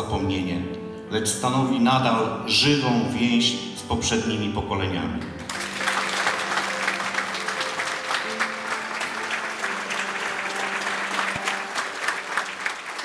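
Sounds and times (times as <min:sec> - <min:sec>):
long held music notes: 0:05.1 - 0:13.0
audience applauding: 0:05.4 - 0:13.0.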